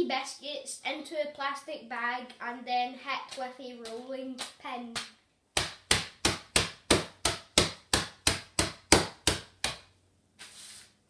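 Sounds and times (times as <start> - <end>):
rolling pin beating biscuits: 3.3 - 9.9.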